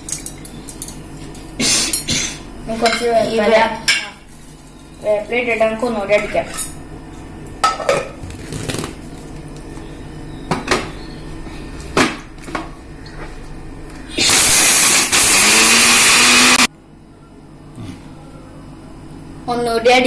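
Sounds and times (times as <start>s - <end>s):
mixer grinder motor grinding spices: 13.9s - 16.7s.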